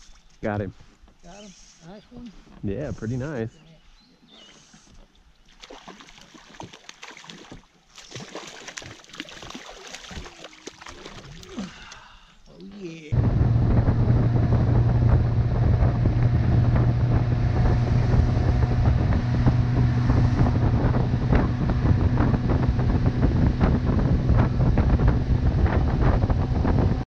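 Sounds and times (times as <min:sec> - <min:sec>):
outboard motor running: 0:13.2 - 0:27.0
wind buffeting microphone: 0:13.2 - 0:27.0.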